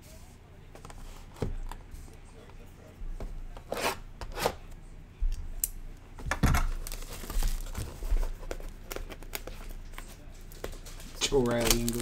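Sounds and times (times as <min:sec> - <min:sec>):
plastic shrink wrap tearing: 0:06.8 - 0:07.9, 0:10.8 - 0:12.0.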